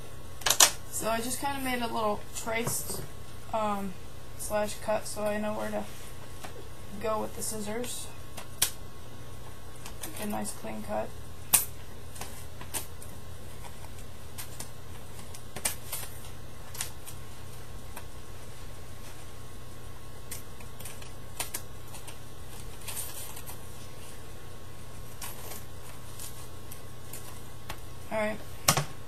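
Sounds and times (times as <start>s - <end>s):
steady low hum: 0.0s - 29.0s
paper rustling: 20.3s - 27.8s.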